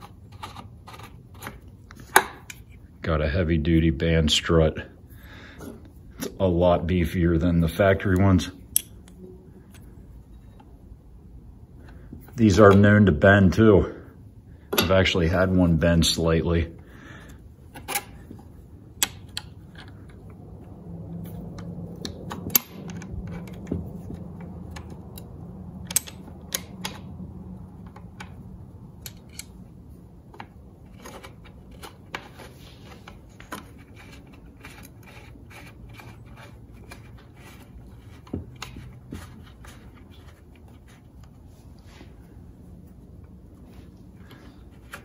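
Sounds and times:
steady low hum: 0:00.0 - 0:45.0
metallic clicks and taps: 0:24.4 - 0:27.1.

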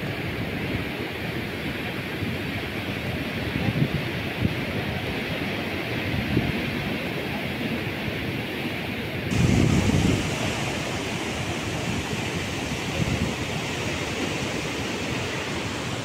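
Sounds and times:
wind buffeting microphone: 0:09.2 - 0:16.0
surf breaking on rocks: 0:09.3 - 0:16.0.

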